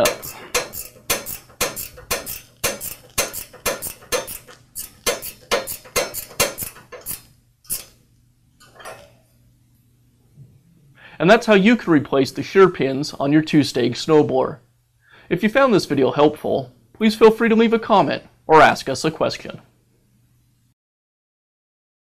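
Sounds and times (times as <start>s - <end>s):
wrenches clicking on metal: 0.0s - 8.0s.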